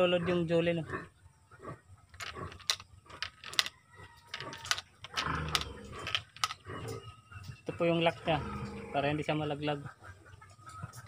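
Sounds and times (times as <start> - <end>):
marbles clicking into toy gun: 2.1 - 6.6.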